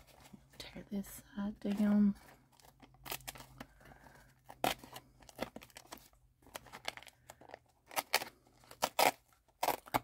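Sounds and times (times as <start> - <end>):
paper filter crinkling and tearing: 2.6 - 3.8, 4.5 - 10.0.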